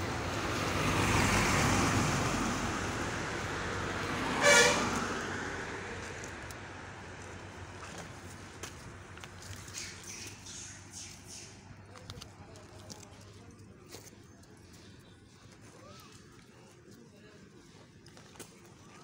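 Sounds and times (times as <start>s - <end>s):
road traffic passing: 0.0s - 19.0s
vehicle horn toot: 4.3s - 5.0s.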